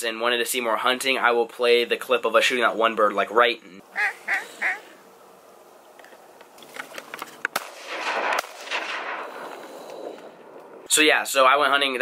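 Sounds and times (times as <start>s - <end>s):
shotgun shots: 7.5s - 10.5s.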